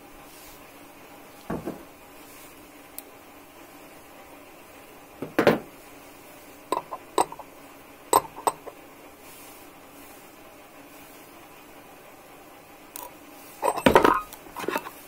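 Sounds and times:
spanner clattering: 6.7 - 7.4, 8.1 - 8.8.

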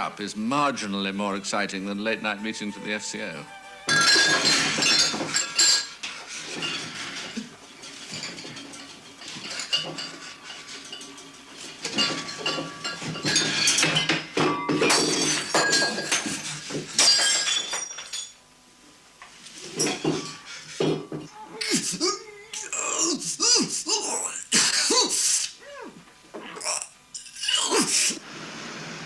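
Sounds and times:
glass and crockery clattering: 3.9 - 18.4, 19.6 - 21.3.

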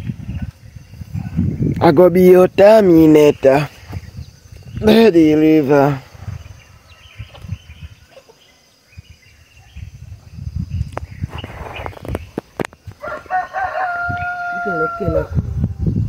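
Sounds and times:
outdoor rustling: 0.0 - 15.7
rooster crowing: 13.0 - 15.6.

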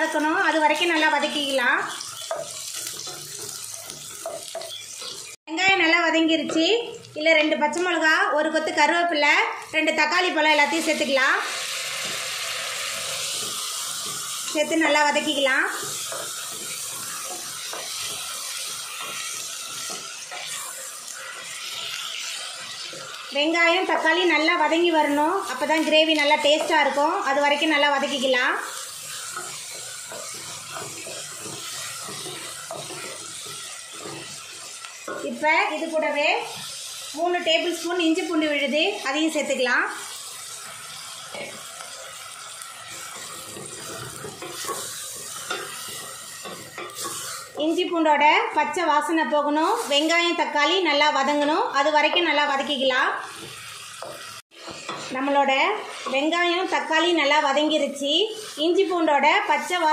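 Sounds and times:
vegetables sizzling in oil: 0.0 - 59.9
spatula scraping and knocking pot: 2.0 - 5.3, 15.3 - 23.2, 25.1 - 35.4, 43.0 - 47.8, 53.3 - 56.5.

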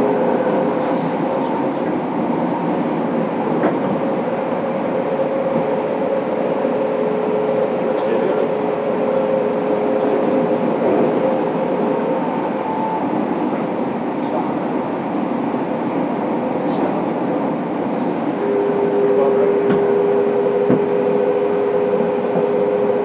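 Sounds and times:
train wheels rumbling: 0.0 - 23.0.

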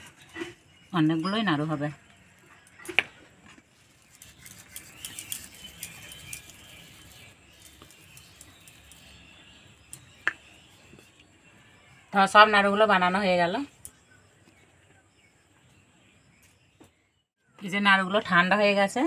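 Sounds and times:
hands rolling sticky mixture: 4.0 - 11.2.

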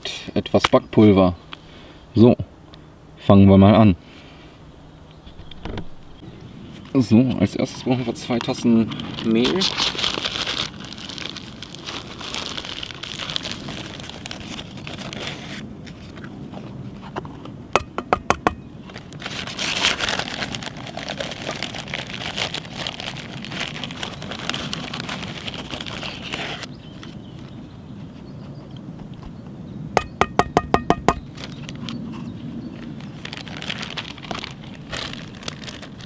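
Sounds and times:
plastic bag rustling: 8.9 - 15.6, 18.8 - 26.7, 31.2 - 31.8, 32.8 - 36.0
sharp taps: 17.8 - 18.6, 30.0 - 31.2.

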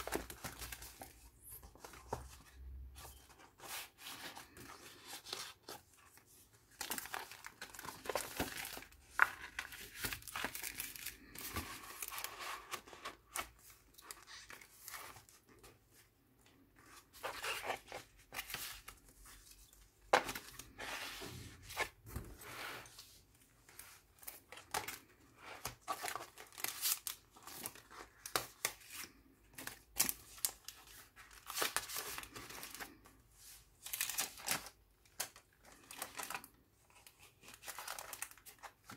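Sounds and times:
paper rustling and crinkling: 0.0 - 16.1, 16.8 - 38.9.

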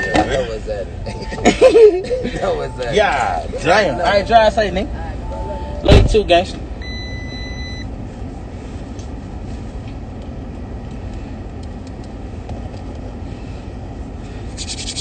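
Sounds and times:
car engine rumble from inside: 0.0 - 15.0
short electronic beep: 3.8 - 6.0, 6.8 - 7.9.

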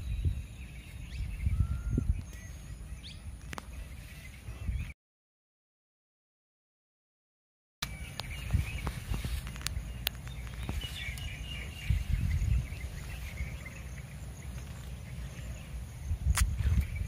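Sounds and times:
birds chirping: 0.0 - 5.0, 7.8 - 17.0
insects chirping: 7.8 - 17.0.

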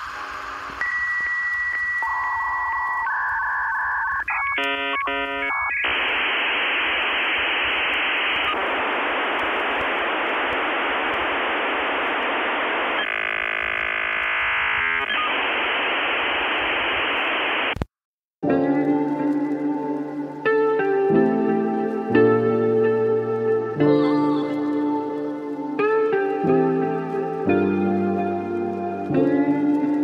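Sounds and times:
stepped electronic tones: 0.0 - 17.9
radio static hiss: 0.0 - 30.0
buzzy tone: 4.6 - 17.7.

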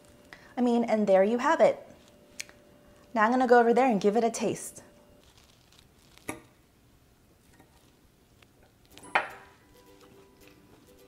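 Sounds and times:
fork clinking on ceramic plate: 9.0 - 9.6.

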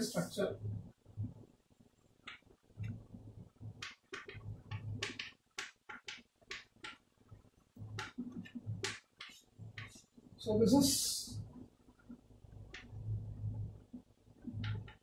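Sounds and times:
chalk scratching on blackboard: 8.4 - 10.1.

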